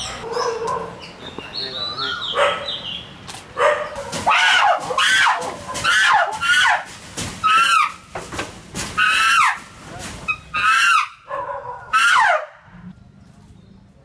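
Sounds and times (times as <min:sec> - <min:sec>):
chimpanzee screaming: 0:04.2 - 0:08.0, 0:09.0 - 0:09.7, 0:10.3 - 0:11.3, 0:11.9 - 0:12.6.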